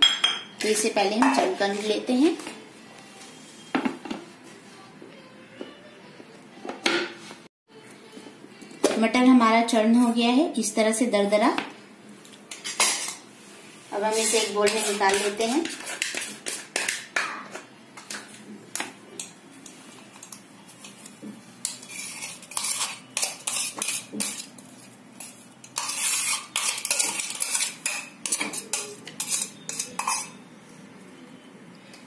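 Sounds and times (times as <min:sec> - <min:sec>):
metal spoon scraping metal jar: 0:21.6 - 0:24.5, 0:25.6 - 0:30.4.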